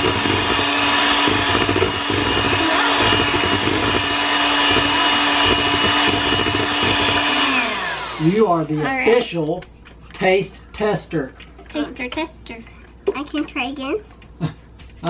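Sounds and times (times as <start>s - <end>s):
electric hand mixer whining: 0.0s - 9.0s.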